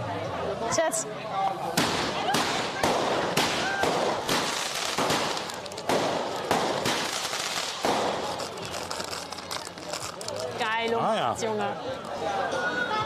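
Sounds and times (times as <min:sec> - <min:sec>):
fireworks bangs: 0:01.8 - 0:09.1
crackling hiss of sparks: 0:03.4 - 0:10.0.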